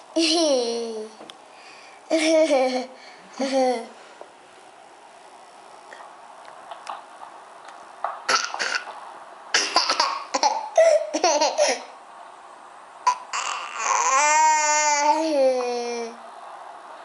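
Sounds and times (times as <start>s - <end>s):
toddler laughing: 2.1s - 3.9s, 9.7s - 12.0s, 13.1s - 15.4s.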